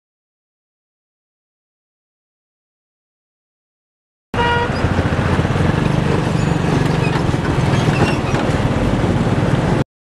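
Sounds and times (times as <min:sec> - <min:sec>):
road and engine rumble: 0:04.4 - 0:09.9.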